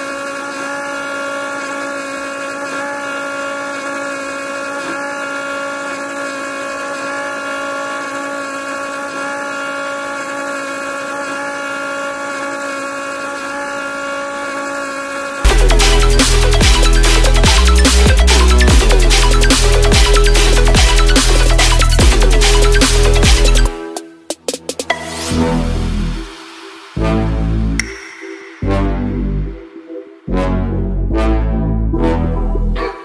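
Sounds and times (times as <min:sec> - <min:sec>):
small motor humming: 0:00.0 - 0:24.0.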